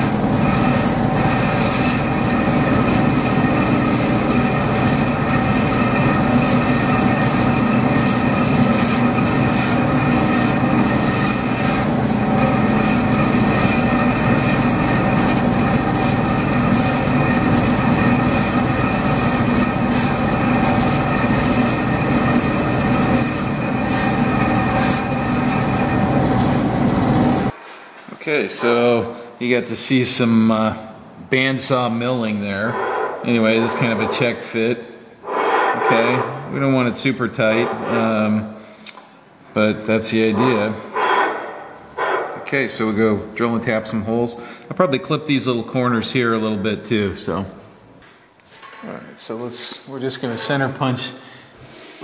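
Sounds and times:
bandsaw cutting metal plate: 0:00.0 - 0:27.5, 0:35.3 - 0:36.4.

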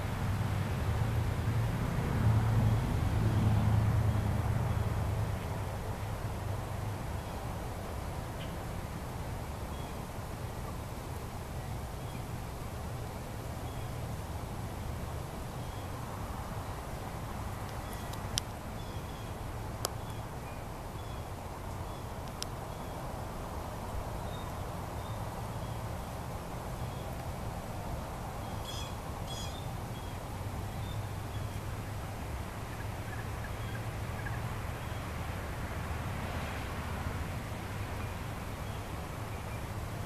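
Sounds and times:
bird chirps: 0:28.5 - 0:30.2.

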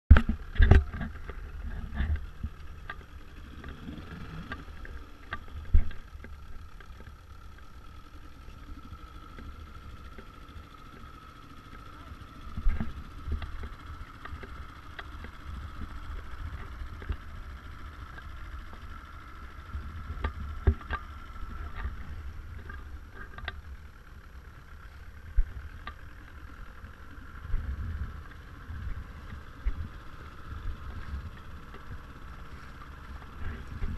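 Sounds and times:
boat motor whining: 0:00.1 - 0:33.9.

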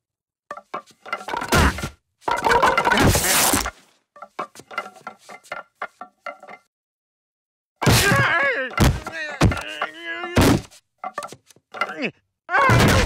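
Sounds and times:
wooden bats clattering: 0:00.5 - 0:06.7, 0:07.8 - 0:12.1
body falling onto bats: 0:07.8 - 0:11.5
man groaning and yelling: 0:08.0 - 0:10.4, 0:11.9 - 0:13.0.

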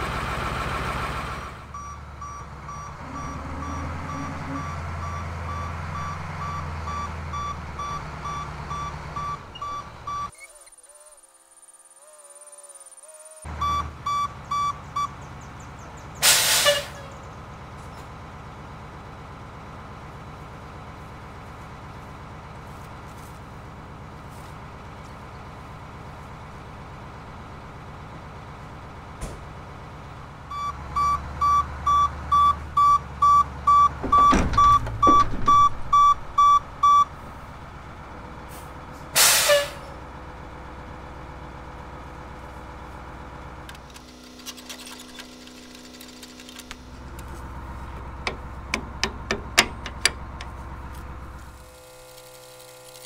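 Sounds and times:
truck engine revving: 0:00.0 - 0:10.4, 0:29.8 - 0:53.0
backup alarm beeping: 0:01.7 - 0:10.3, 0:13.5 - 0:15.2, 0:30.5 - 0:37.1
air brake hiss: 0:16.2 - 0:17.0, 0:38.5 - 0:39.9
metal hitch clicking and knocking: 0:48.2 - 0:50.6.

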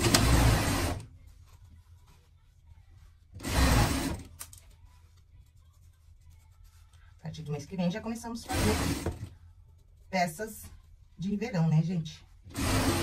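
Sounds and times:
sewing machine running: 0:00.0 - 0:01.0, 0:03.4 - 0:04.3, 0:08.4 - 0:09.2, 0:12.5 - 0:13.0.

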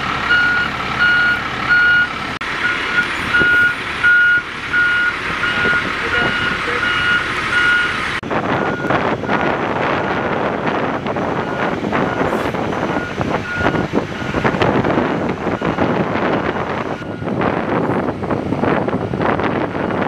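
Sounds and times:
truck engine running: 0:00.0 - 0:20.0
vehicle reversing beeper: 0:00.2 - 0:08.0, 0:11.4 - 0:14.6, 0:15.5 - 0:17.4, 0:19.0 - 0:20.0
wind on microphone: 0:08.2 - 0:20.0.

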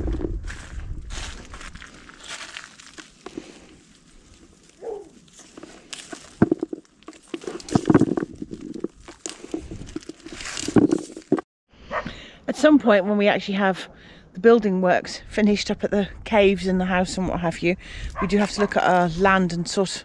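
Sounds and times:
branches and leaves rustling: 0:00.0 - 0:11.4
footsteps crunching dry leaves: 0:00.0 - 0:11.4.

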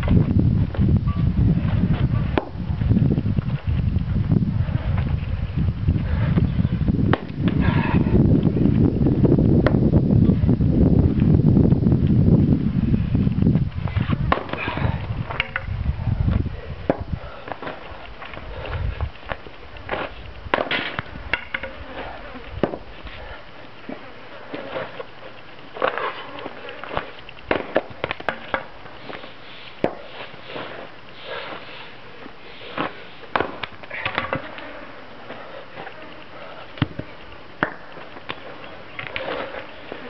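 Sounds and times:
axe chopping firewood: 0:14.3 - 0:14.6, 0:26.9 - 0:28.7, 0:29.8 - 0:30.1, 0:32.8 - 0:34.5, 0:37.6 - 0:38.4.

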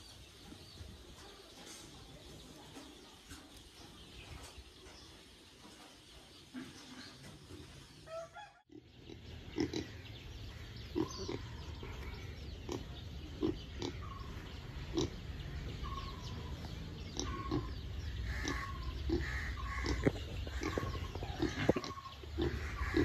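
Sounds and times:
pigs grunting: 0:08.7 - 0:10.1, 0:10.8 - 0:16.3, 0:17.0 - 0:23.0.

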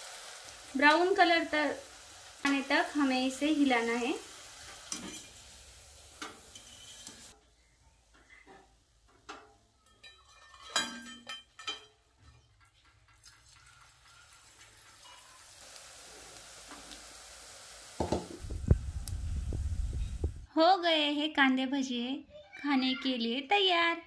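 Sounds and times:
hot oil sizzling: 0:00.0 - 0:20.5
wire strainer clinking on metal: 0:09.3 - 0:14.3.

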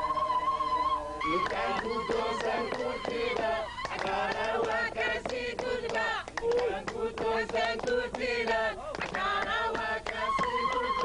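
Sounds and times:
group singing: 0:00.0 - 0:11.0
rhythmic hand clapping: 0:01.2 - 0:11.0.

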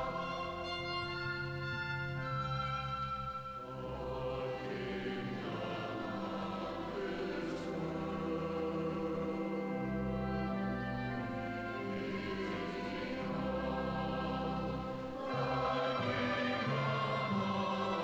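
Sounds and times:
choir singing held chords: 0:00.0 - 0:18.0.

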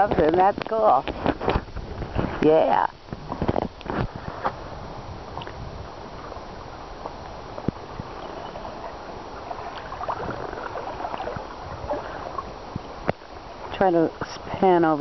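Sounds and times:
water gurgling along canoe hull: 0:00.0 - 0:15.0
wind rumbling on microphone: 0:00.0 - 0:15.0
small splashes: 0:07.6 - 0:13.8.

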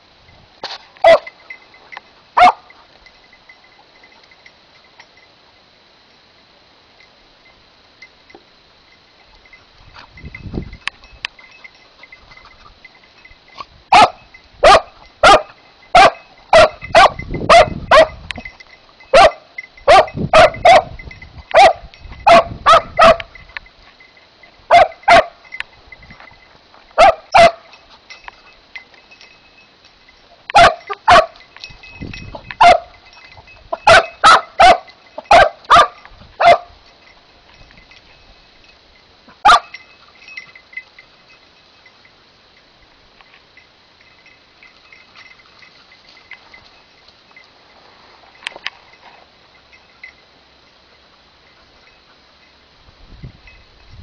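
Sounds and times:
hound baying: 0:01.0 - 0:01.4, 0:02.3 - 0:02.9, 0:13.9 - 0:18.2, 0:19.1 - 0:23.4, 0:24.7 - 0:25.4, 0:30.5 - 0:31.4, 0:32.6 - 0:33.0, 0:33.7 - 0:36.8.

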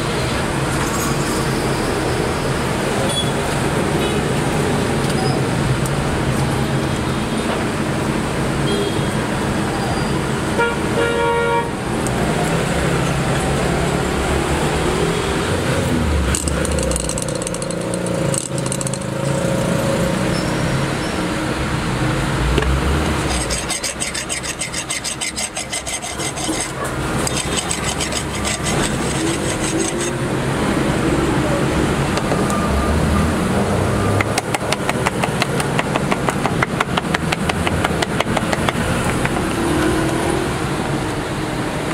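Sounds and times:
street traffic: 0:00.0 - 0:41.9
vehicle horn: 0:08.6 - 0:09.1, 0:10.6 - 0:11.8
fast even rattle: 0:16.3 - 0:19.2.

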